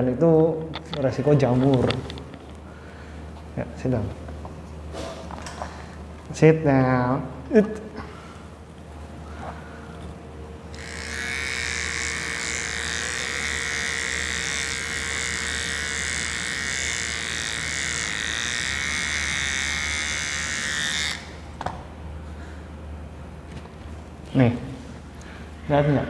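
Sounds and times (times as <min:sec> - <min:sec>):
pet trimmer buzzing: 0:10.6 - 0:21.6.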